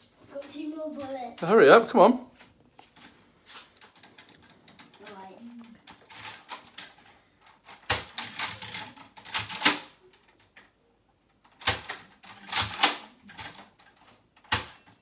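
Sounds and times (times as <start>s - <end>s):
toy blaster plastic clicks and rattles: 5.9s - 10.7s, 11.5s - 14.8s.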